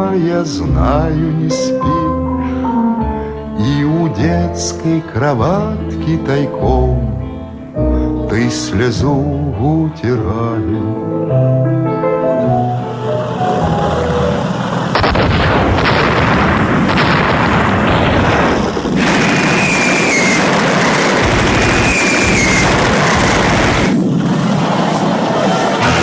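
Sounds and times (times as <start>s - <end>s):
explosions: 14.8s - 26.0s
gunfire: 15.0s - 26.0s
high whistling tone: 19.0s - 24.0s.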